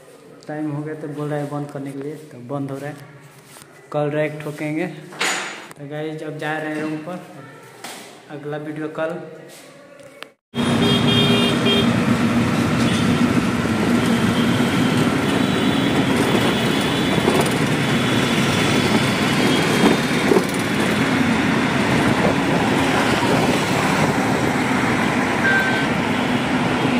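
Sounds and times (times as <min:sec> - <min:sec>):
vehicle engine and road noise: 0:10.6 - 0:26.9
short high beep: 0:25.4 - 0:25.9.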